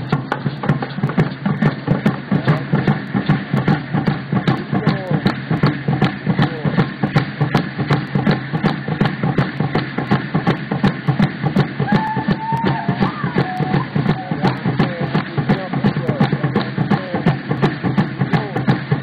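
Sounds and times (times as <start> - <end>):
drum beaten steadily: 0.0 - 19.0
voices: 4.5 - 5.3, 11.8 - 18.8.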